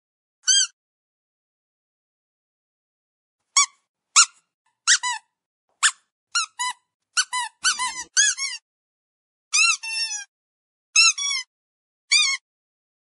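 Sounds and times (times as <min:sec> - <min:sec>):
squeaky dog toy squeaks: 0:00.4 - 0:00.8, 0:03.5 - 0:08.6, 0:09.5 - 0:10.3, 0:11.0 - 0:11.5, 0:12.1 - 0:12.4.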